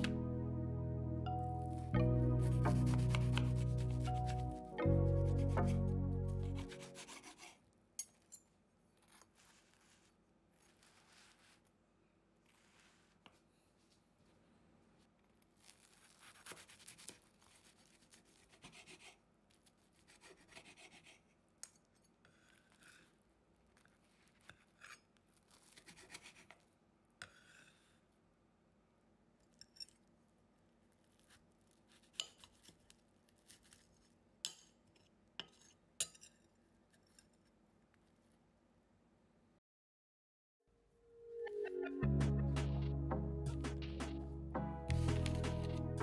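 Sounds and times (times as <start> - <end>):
scraping and rubbing strokes: 2.4 - 7.6, 9.0 - 11.7, 12.4 - 14.0, 44.9 - 46.0.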